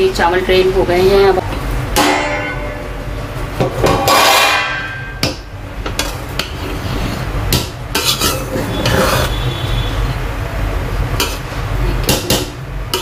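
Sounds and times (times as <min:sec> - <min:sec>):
spoon scraping rice in pot: 0:08.0 - 0:09.4.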